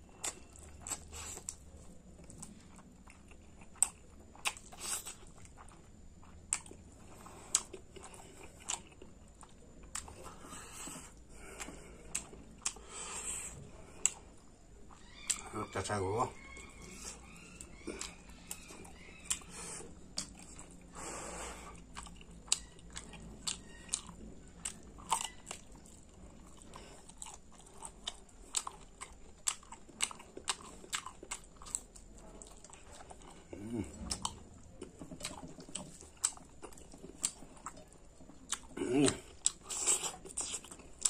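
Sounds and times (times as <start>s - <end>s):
person chewing food: 0.0s - 41.0s.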